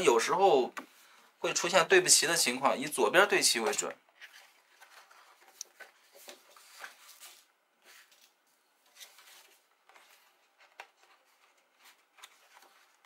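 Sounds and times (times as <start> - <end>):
card stock rustling: 4.1 - 13.0.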